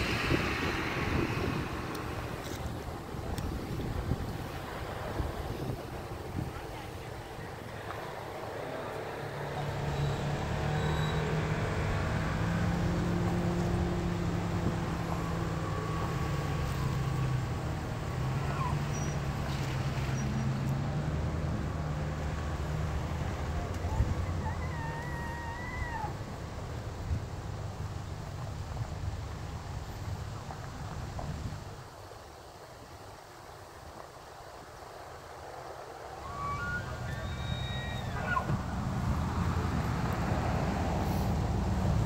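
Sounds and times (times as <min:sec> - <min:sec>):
elk bugling: 0:36.2 - 0:38.9.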